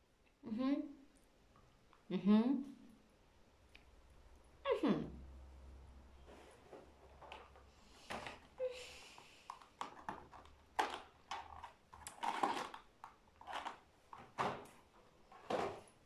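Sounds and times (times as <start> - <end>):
foil wrapper crinkling: 9.8 - 13.9.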